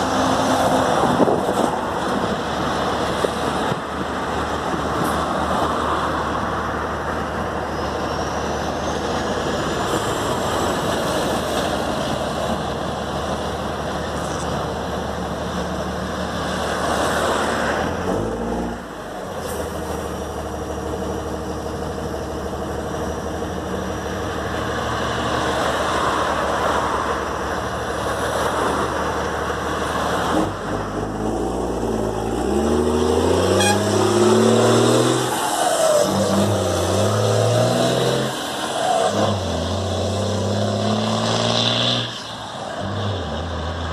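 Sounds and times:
heavy truck accelerating through gears: 0.0s - 43.9s
highway traffic passing: 0.0s - 43.9s.

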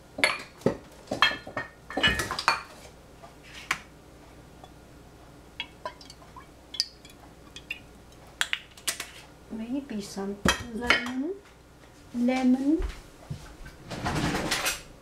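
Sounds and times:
dishes and utensils clinking: 5.6s - 7.9s.

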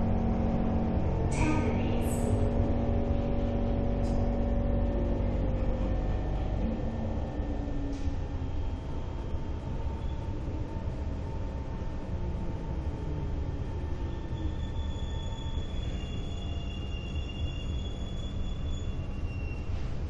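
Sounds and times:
train wheels rumbling on rail: 0.0s - 20.0s.

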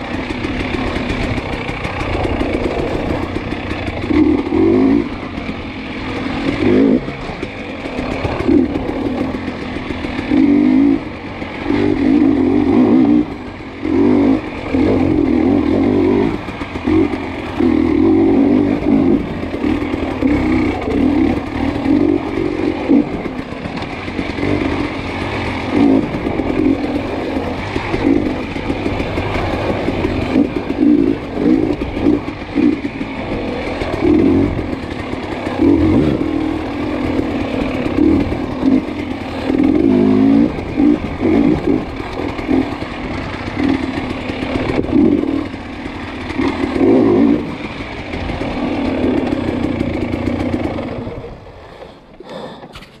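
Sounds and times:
bike clattering over rough ground: 0.0s - 11.7s, 19.1s - 46.9s
dirt bike engine revving: 0.0s - 53.0s.

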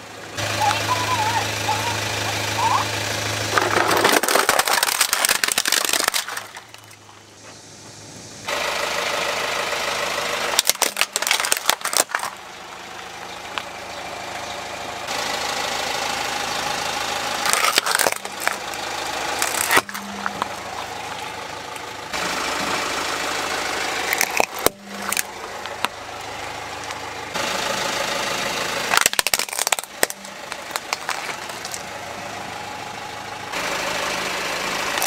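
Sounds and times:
car engine running: 0.0s - 35.0s
plastic cracking and crunching: 3.5s - 7.0s, 10.5s - 12.4s, 17.4s - 18.8s, 19.4s - 20.7s, 24.1s - 25.9s, 28.9s - 31.8s.

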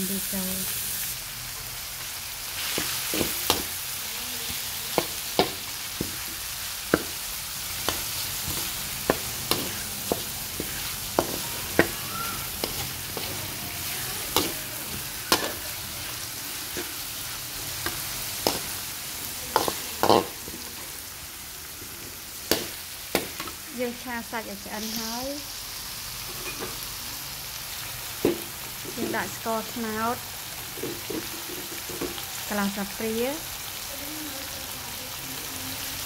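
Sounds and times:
frying in oil in a wok: 0.0s - 36.0s
metal spatula scraping pan: 7.8s - 21.0s.

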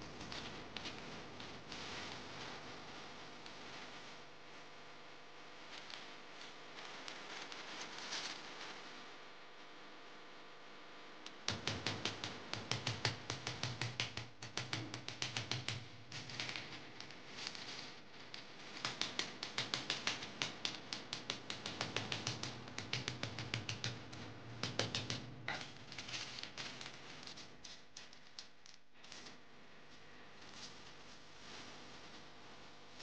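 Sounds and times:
rolling pin clicking and tapping: 11.3s - 17.6s, 18.4s - 28.8s.

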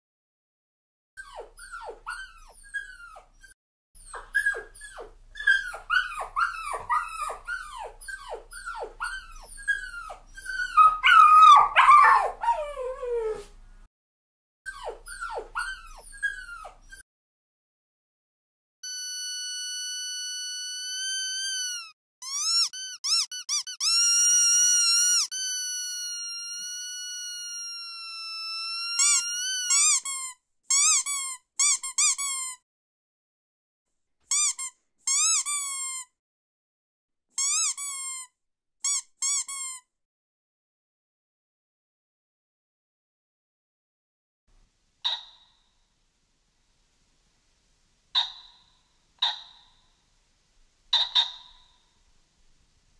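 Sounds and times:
squeaky dog toy squeaking: 1.2s - 13.3s, 14.7s - 17.0s, 18.8s - 32.6s, 34.3s - 36.2s, 37.4s - 39.9s, 45.0s - 45.4s, 48.2s - 48.6s, 49.2s - 49.7s, 50.9s - 51.7s
puppy whimpering: 1.2s - 13.6s, 14.7s - 17.0s, 21.6s - 30.1s.

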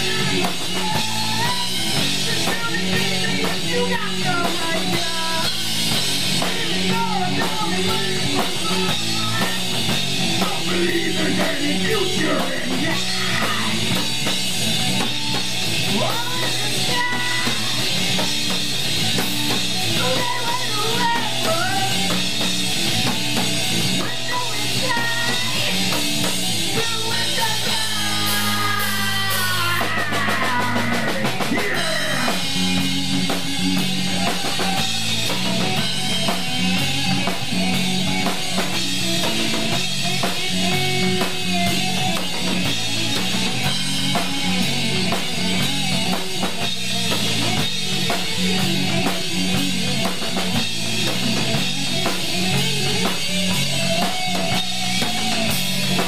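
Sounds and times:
person singing: 0.0s - 5.6s, 6.4s - 14.0s, 15.8s - 18.2s, 19.9s - 22.2s, 24.0s - 26.0s, 26.6s - 32.9s
bass guitar: 0.0s - 56.0s
drum kit: 0.0s - 56.0s
electric guitar: 0.0s - 56.0s.

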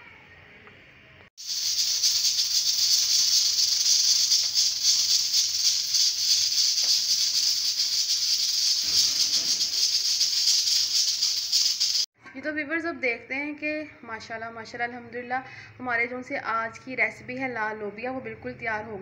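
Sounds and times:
pressure cooker valve hissing: 1.4s - 12.1s.

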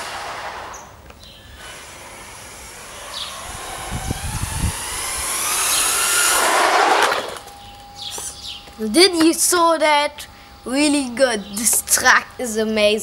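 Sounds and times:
rc car motor whining: 0.0s - 8.5s.

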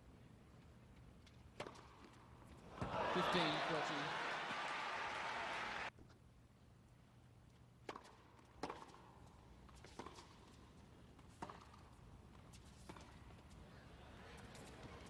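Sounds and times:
tennis ball struck by racket: 1.6s - 2.0s
hushed indoor crowd: 2.7s - 5.9s.

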